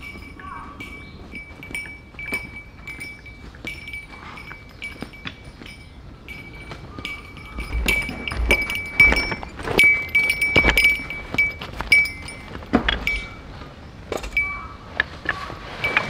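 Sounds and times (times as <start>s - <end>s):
footsteps on leaves: 0.0s - 12.8s
metal camping gear clinking: 0.0s - 16.0s.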